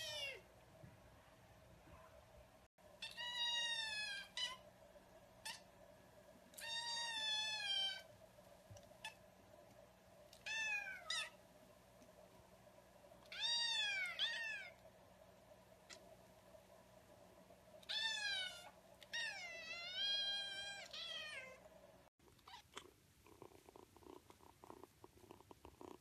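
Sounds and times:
kitten meowing: 6.6 - 8.1, 13.3 - 14.8.

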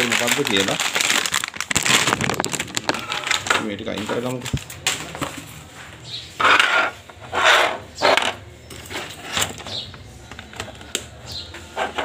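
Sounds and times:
papers rustling: 0.0 - 5.8.

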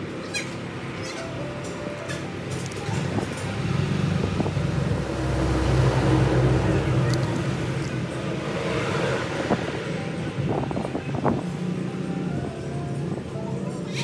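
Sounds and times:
low engine rumble: 0.0 - 13.9.

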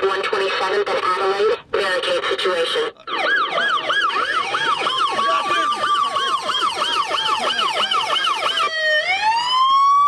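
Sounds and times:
police siren yelp: 2.6 - 10.0
police siren wail: 2.9 - 10.0.

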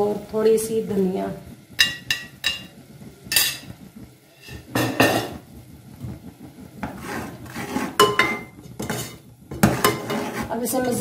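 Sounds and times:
utensils clinking against metal pot: 1.8 - 2.7, 7.9 - 11.0.

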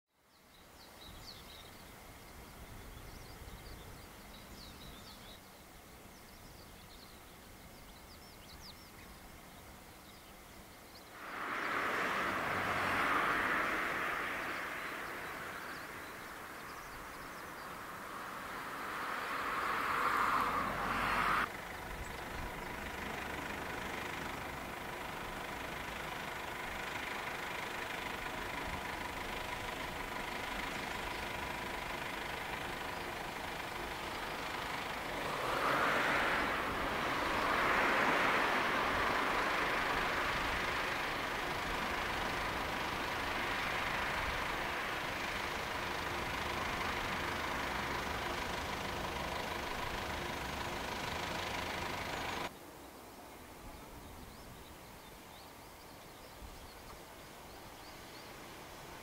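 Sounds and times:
birds chirping faintly: 0.2 - 59.0
faint engine whine: 0.2 - 59.0
distant jet airliner rushing: 11.1 - 21.5, 33.8 - 45.7.

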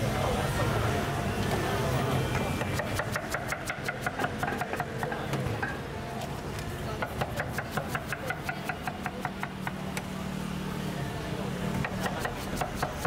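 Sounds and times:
cleaver chopping on wooden board: 2.6 - 5.2, 7.0 - 9.8, 11.8 - 13.0.

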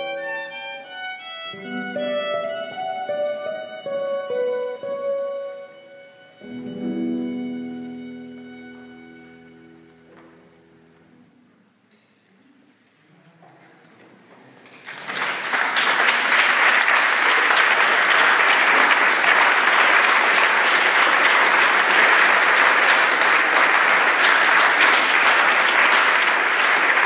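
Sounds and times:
crowd applauding: 14.7 - 27.0.

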